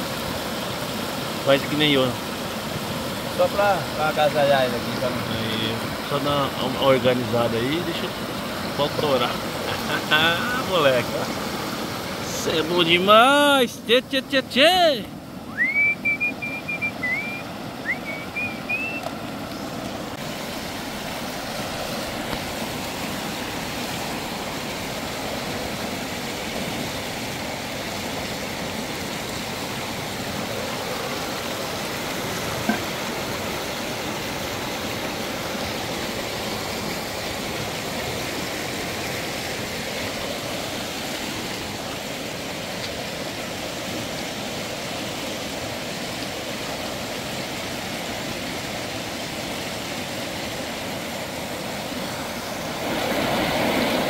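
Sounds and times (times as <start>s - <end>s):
high whistled notes: 15.5s - 19.0s.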